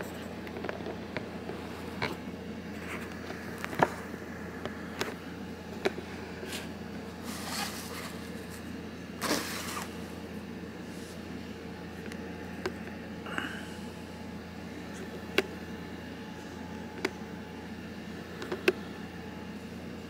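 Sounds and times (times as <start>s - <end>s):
steady low hum: 0.0s - 20.0s
cardboard box scraping rustles: 7.2s - 8.6s, 9.2s - 10.0s.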